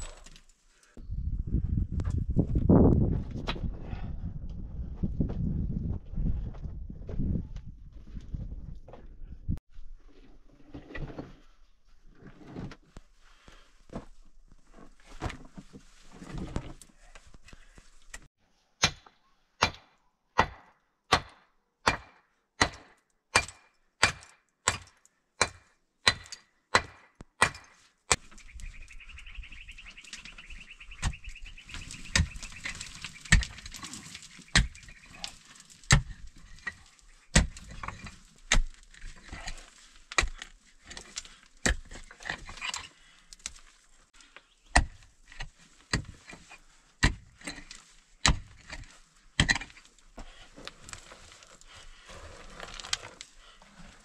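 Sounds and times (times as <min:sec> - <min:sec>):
stones scraping in dirt: 0:10.0 - 0:17.8, 0:29.5 - 0:54.0.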